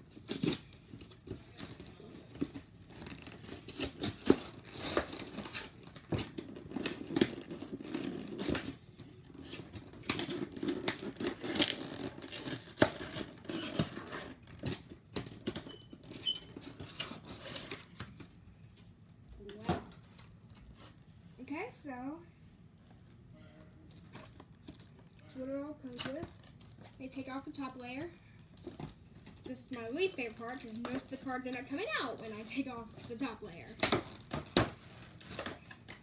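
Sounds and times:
cardboard wrapping crinkling and tearing: 0:00.0 - 0:15.4, 0:33.0 - 0:36.0.

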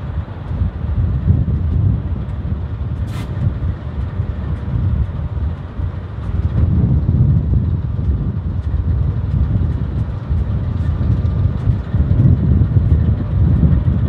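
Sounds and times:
diesel locomotive idling rumble: 0:00.0 - 0:14.0
air release hiss: 0:03.1 - 0:03.4.

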